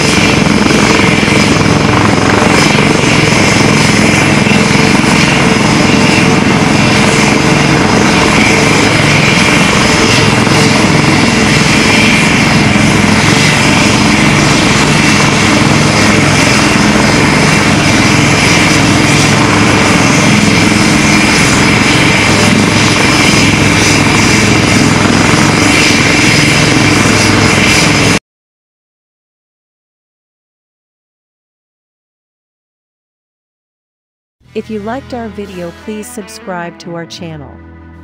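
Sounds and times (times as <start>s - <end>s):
helicopter rotor chopping: 0.0s - 28.2s
helicopter turbine whine: 0.0s - 28.2s.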